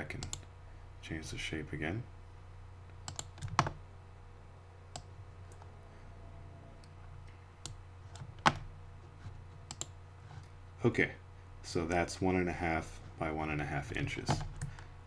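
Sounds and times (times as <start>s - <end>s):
steady low hum: 0.0s - 15.0s
computer mouse clicks: 3.0s - 3.8s, 9.7s - 10.0s.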